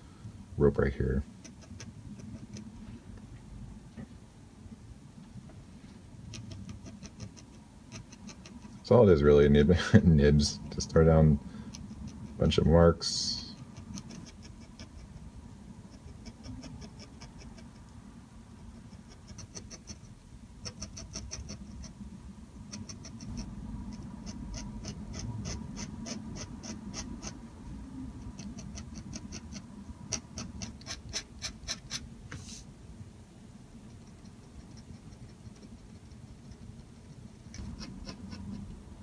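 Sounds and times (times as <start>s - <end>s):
pen nib scratching on paper: 1.4s - 2.7s, 6.3s - 8.8s, 13.5s - 15.3s, 15.9s - 17.9s, 18.7s - 22.0s, 22.7s - 27.4s, 28.2s - 32.1s, 33.8s - 38.7s.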